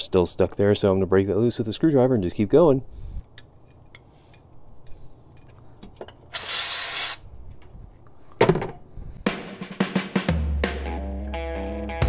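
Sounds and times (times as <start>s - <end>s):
aerosol spray hiss: 6.3s - 7.2s.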